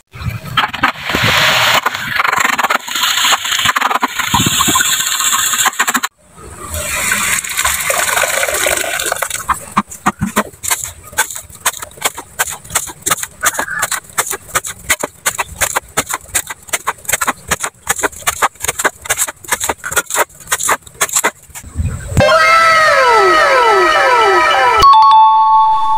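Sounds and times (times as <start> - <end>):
trowel scooping mortar: 0.5 - 6.1, 6.9 - 21.7
wet mortar pouring from bucket: 0.6 - 6.1, 6.8 - 21.6.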